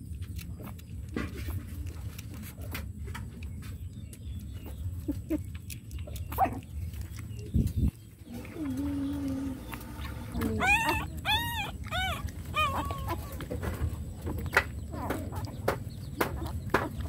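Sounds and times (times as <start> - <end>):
puppy squeaks: 5.0 - 7.5, 8.3 - 13.6
puppy whining: 5.0 - 7.5, 8.2 - 17.0
puppy sucking from bottle: 8.3 - 13.4.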